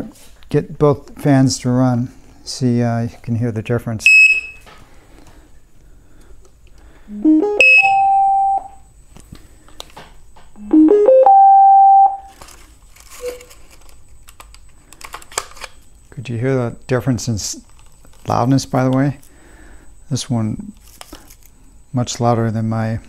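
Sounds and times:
faint high whine: 0:06.9 - 0:09.7, 0:10.4 - 0:15.0, 0:15.7 - 0:23.0
electronic startup jingle: 0:07.1 - 0:08.8, 0:10.6 - 0:12.3.

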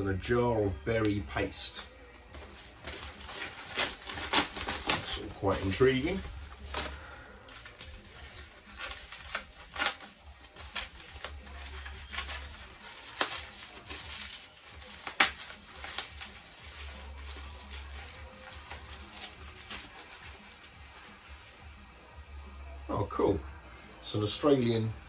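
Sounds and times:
packaging rustling and crinkling: 0:02.3 - 0:21.6.

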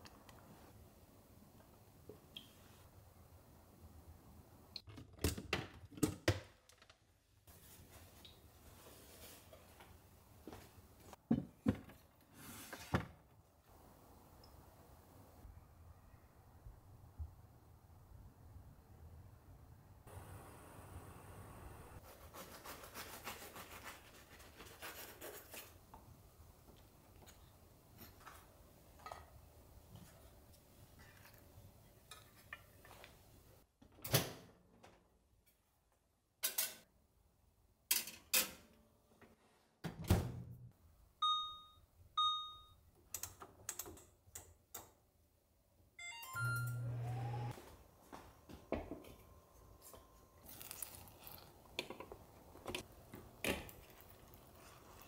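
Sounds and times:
appliance humming: 0:46.6 - 0:47.7.

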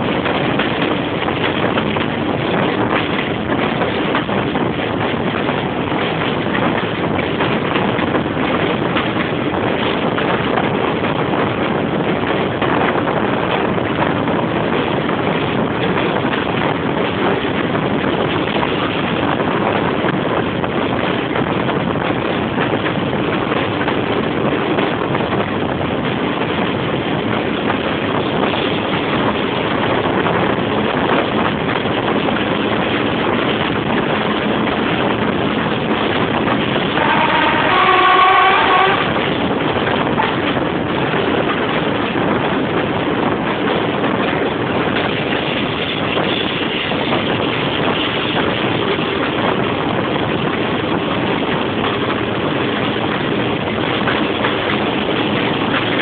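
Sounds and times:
train running on track: 0:00.0 - 0:56.0
wind buffeting microphone: 0:00.0 - 0:56.0
diesel locomotive engine thrashing: 0:32.9 - 0:56.0.

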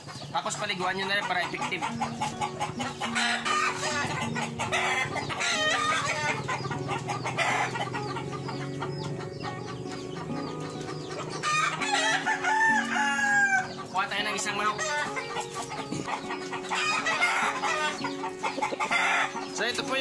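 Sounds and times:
chickens clucking: 0:00.0 - 0:20.0
rooster crowing: 0:11.4 - 0:13.8.

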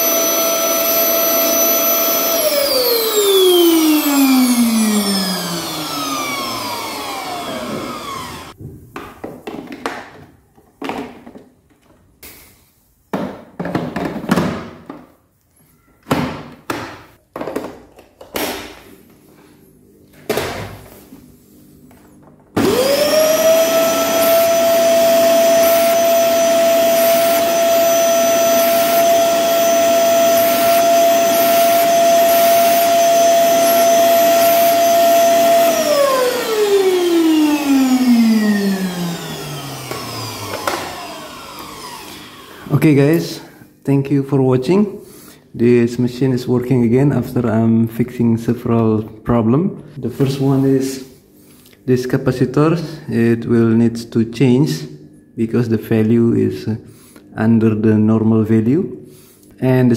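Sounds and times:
vacuum cleaner motor: 0:00.0 - 0:08.6, 0:22.6 - 0:43.2
knocks and handling noise: 0:08.6 - 0:12.5, 0:13.1 - 0:19.5.

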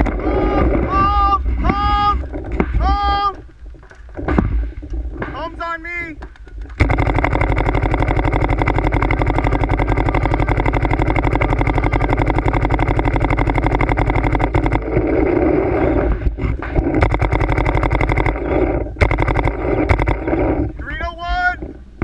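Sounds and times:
paintball marker firing shots: 0:06.2 - 0:15.2, 0:16.6 - 0:20.6.

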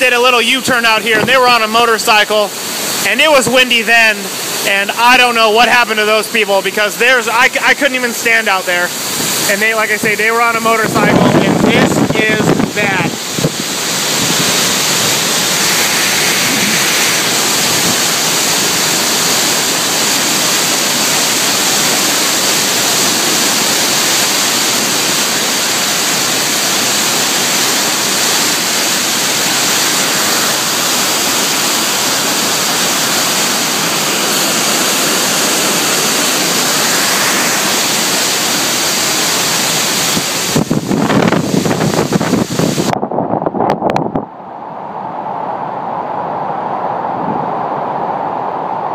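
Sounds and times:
heavy rain and wind hiss: 0:00.0 - 0:48.9
wind buffeting microphone: 0:09.0 - 0:19.8, 0:30.0 - 0:48.9.

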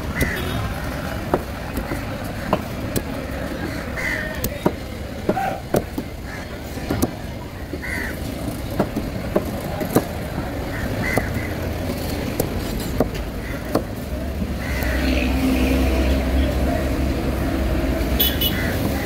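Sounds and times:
traffic rumble: 0:00.0 - 0:19.0
knife chopping fish on wooden board: 0:01.2 - 0:06.2, 0:10.9 - 0:11.6.

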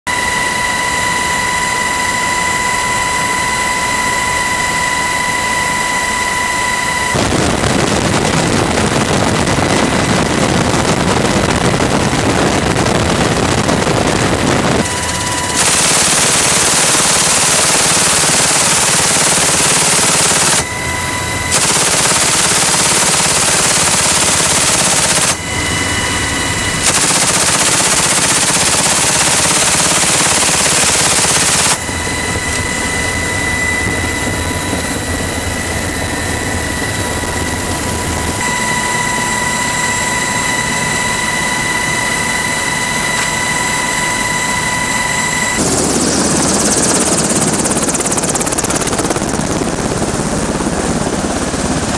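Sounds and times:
helicopter cabin whine: 0:00.1 - 0:51.9
machine gun firing bursts: 0:14.9 - 0:20.7, 0:21.4 - 0:25.4, 0:26.8 - 0:31.8.

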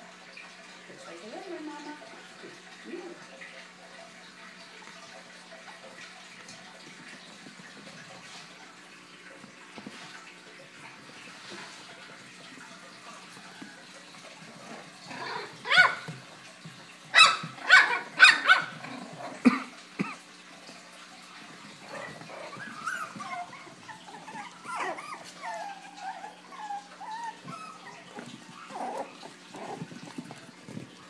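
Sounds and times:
puppies yapping: 0:12.8 - 0:20.2, 0:21.4 - 0:31.0
puppy whining: 0:21.8 - 0:30.9.

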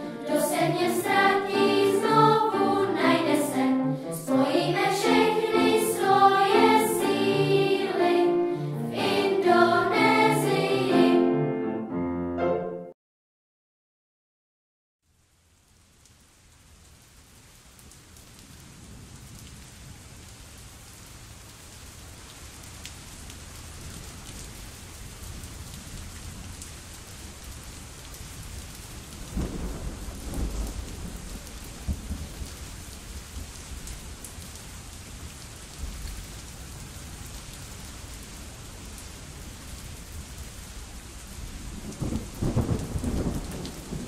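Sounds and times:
steady rain: 0:00.0 - 0:11.0, 0:15.0 - 0:44.0
thunder rolling: 0:29.3 - 0:32.5, 0:41.8 - 0:44.0.

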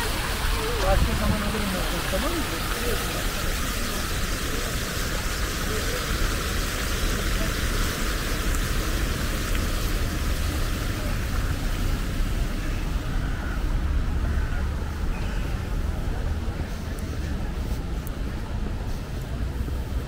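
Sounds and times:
even wash of city noise: 0:00.0 - 0:20.0
low traffic rumble: 0:00.0 - 0:20.0.

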